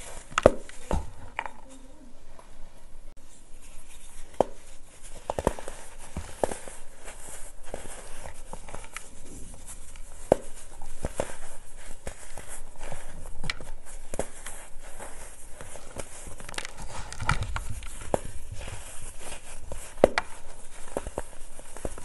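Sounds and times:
hands crushing baking soda chunks: 4.2 - 22.0.

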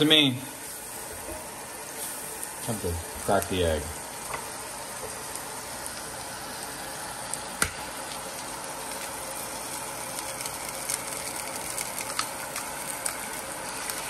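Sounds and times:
butter sizzling in a frying pan: 0.0 - 14.0
egg crackling in hot butter: 0.0 - 14.0
egg cracking tap: 7.6 - 7.9.

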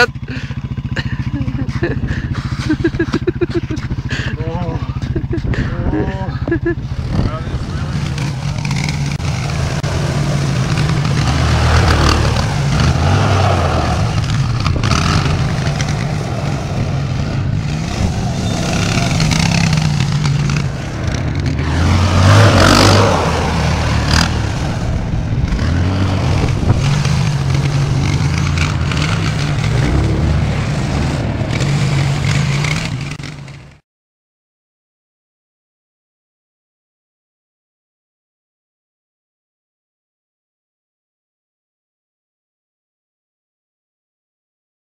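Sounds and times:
quad bike engine revving: 0.0 - 33.8.

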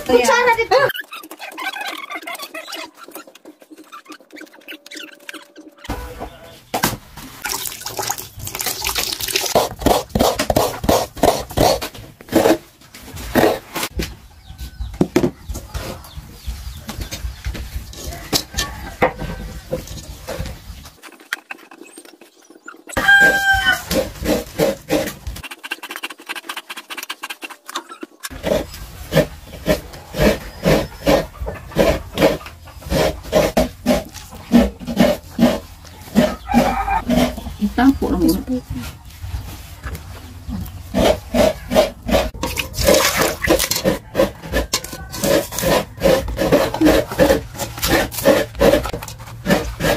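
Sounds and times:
coconut grater scraping: 8.6 - 12.6, 18.0 - 38.8, 39.5 - 49.9.

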